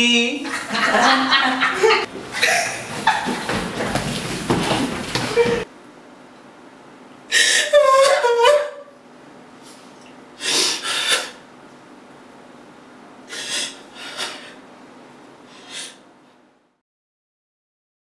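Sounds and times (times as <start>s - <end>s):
woman sobbing: 5.3s - 5.7s, 7.3s - 8.9s.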